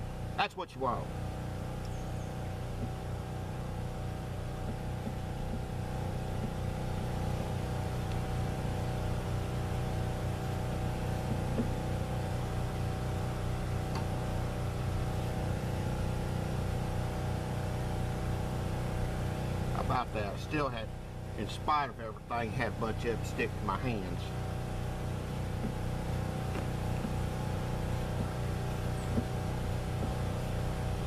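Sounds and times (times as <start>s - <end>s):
engine droning steadily: 0.0s - 31.0s
faint taps: 29.1s - 29.4s.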